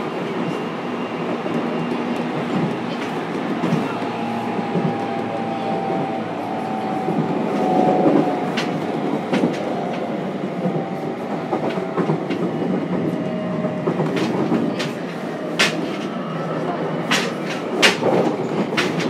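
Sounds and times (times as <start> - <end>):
train wheels and motors rumbling: 0.0 - 19.0
wheels clicking over rail joints: 17.0 - 19.0.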